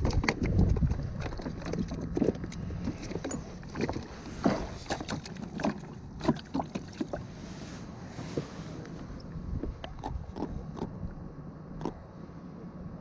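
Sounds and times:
fish knocking in plastic kayak: 0.0 - 7.2
gear bumping against hull: 0.0 - 7.2
wind rumble on microphone: 0.0 - 13.0.

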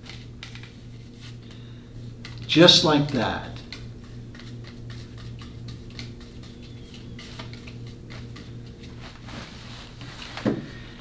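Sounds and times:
low electrical hum: 0.0 - 11.0
brush scratching glue on wood: 2.1 - 10.4.

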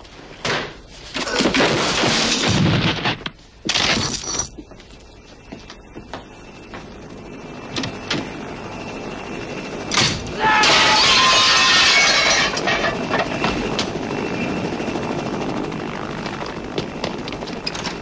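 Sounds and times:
glass breaking crash: 10.6 - 13.0.

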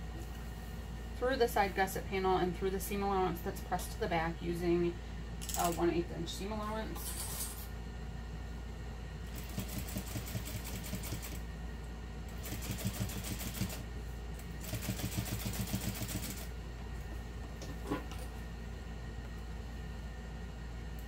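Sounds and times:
sewing machine stitching: 14.6 - 16.4.

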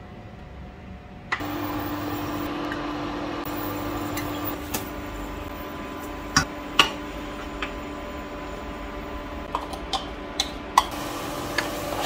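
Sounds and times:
appliance motor humming: 1.4 - 7.8.

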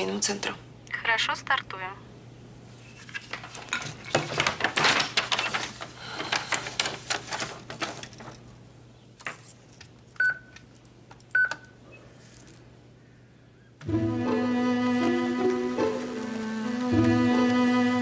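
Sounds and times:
fax machine beeps: 10.2 - 10.6, 11.3 - 11.8
fax machine feeding paper: 14.9 - 18.0.

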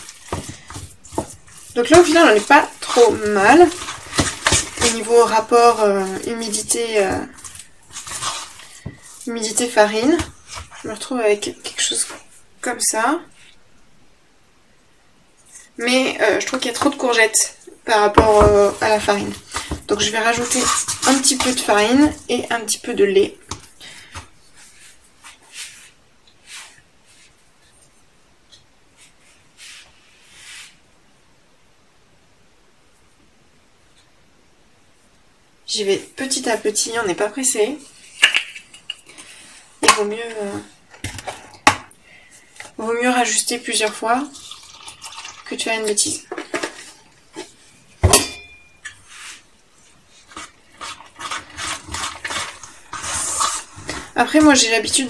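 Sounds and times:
spoon scooping flour: 0.0 - 12.4, 18.0 - 27.4, 43.8 - 55.0
sharp metallic clink: 48.1 - 48.8.

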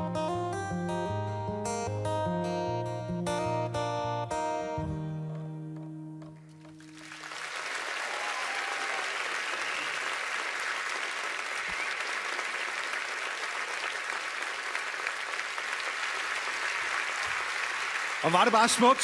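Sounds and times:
acoustic guitar chord: 0.0 - 7.2
audience applauding: 6.6 - 19.0.

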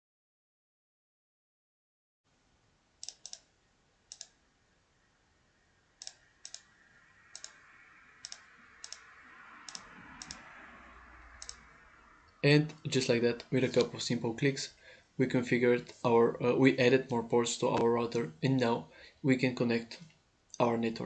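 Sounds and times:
faint background hiss: 2.3 - 21.0
computer mouse clicks: 3.0 - 3.5, 4.1 - 4.4, 6.0 - 6.7, 7.3 - 7.6, 8.2 - 10.5, 11.4 - 11.6.

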